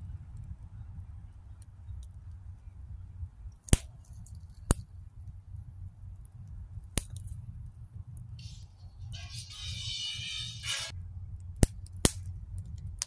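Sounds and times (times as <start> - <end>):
steady low rumble: 0.0 - 13.0
wood fire crackling: 0.0 - 13.0.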